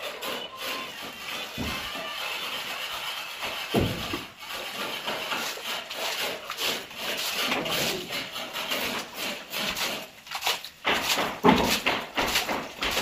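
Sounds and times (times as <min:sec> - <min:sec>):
pipe scraping and rubbing: 0:00.0 - 0:13.0
muddy slurry sloshing: 0:03.8 - 0:13.0.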